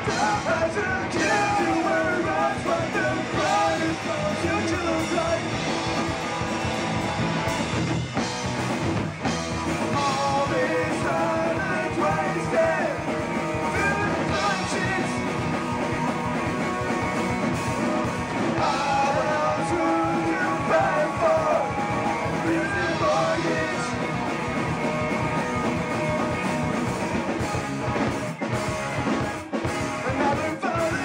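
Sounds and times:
person singing lead vocals: 0.0 - 6.2, 9.8 - 24.6, 29.8 - 31.0
bass guitar: 0.0 - 31.0
distorted electric guitars: 0.0 - 31.0
drum kit: 0.0 - 31.0.

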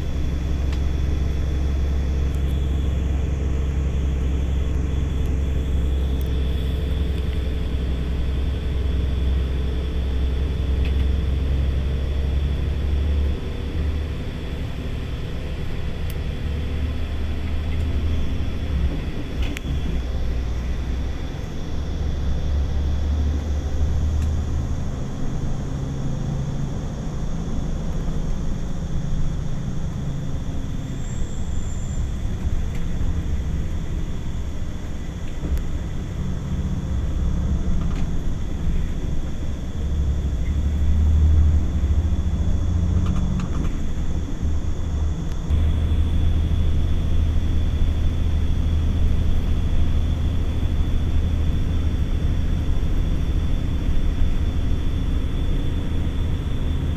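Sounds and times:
engine running: 0.0 - 56.9.

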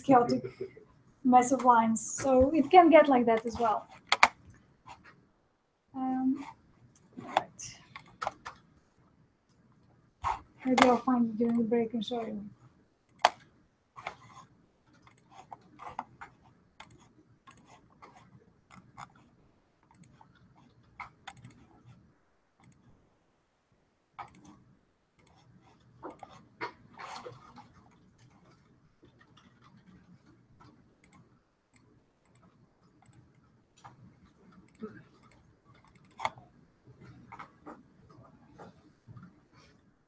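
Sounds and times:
computer mouse clicking: 3.3 - 5.2, 6.4 - 8.7, 10.2 - 11.7, 13.1 - 22.0, 22.6 - 22.9, 24.2 - 39.4.

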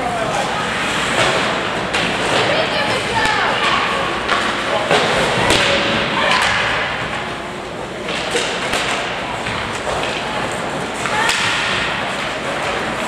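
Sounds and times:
crowd chatter: 0.0 - 13.0
hockey sticks and puck knocking: 0.9 - 7.2, 8.0 - 13.0.

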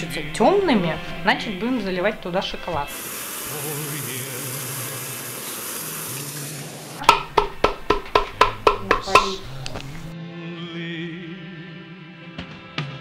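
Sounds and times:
steady hiss: 2.9 - 7.0.

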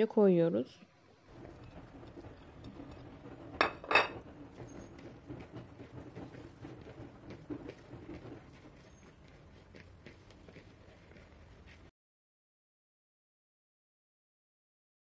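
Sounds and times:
plate clinking: 1.3 - 5.1.

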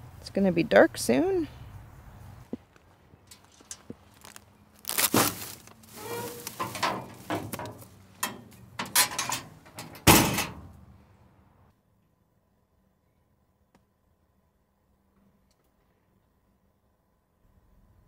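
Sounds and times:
knocks and clattering: 6.0 - 10.8
van door shutting: 6.0 - 10.8.

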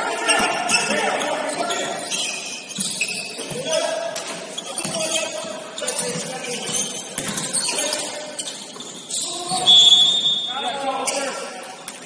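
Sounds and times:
players' voices: 0.0 - 12.0
sneakers squeaking on court: 0.2 - 12.0
basketball bouncing: 6.0 - 7.7.

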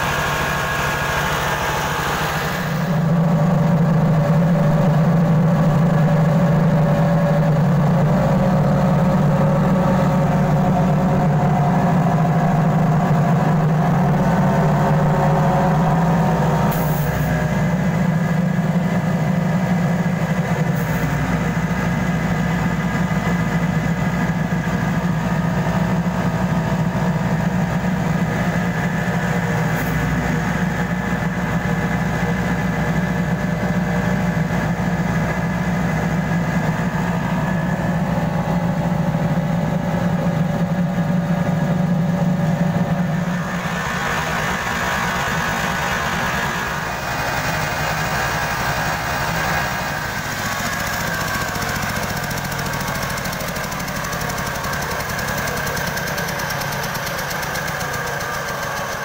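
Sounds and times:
rice huller machine drone: 0.0 - 59.0.

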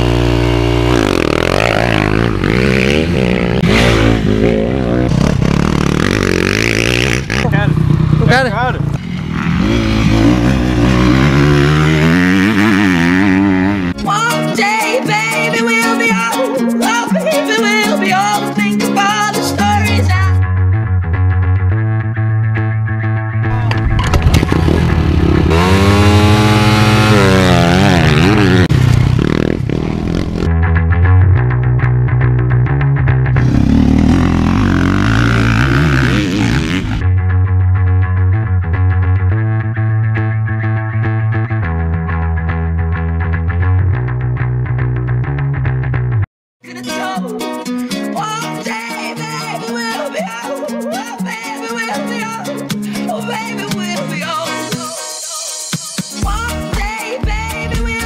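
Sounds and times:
motorbike engine revving: 0.0 - 14.0, 23.5 - 30.5, 33.3 - 37.1.

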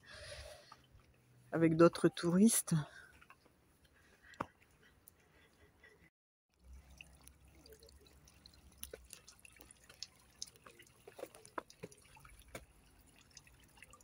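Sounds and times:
water dripping into pool: 6.5 - 14.0.

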